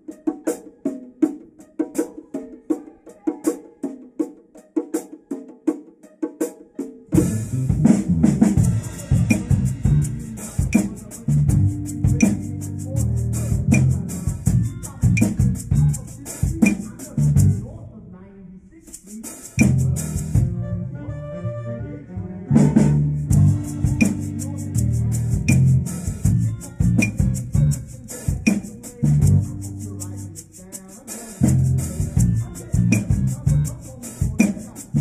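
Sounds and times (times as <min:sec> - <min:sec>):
hand drums: 0:00.0 - 0:17.7, 0:18.9 - 0:20.5, 0:23.2 - 0:35.0
latin band music: 0:00.0 - 0:17.7, 0:18.8 - 0:35.0
strong bass line: 0:07.2 - 0:17.8, 0:19.6 - 0:28.1, 0:28.9 - 0:30.4, 0:31.4 - 0:33.9.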